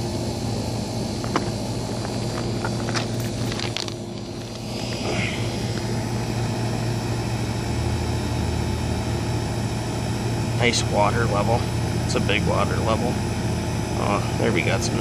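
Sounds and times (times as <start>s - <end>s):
low mechanical hum: 0.0s - 15.0s
gravel stones clacking: 1.2s - 4.7s.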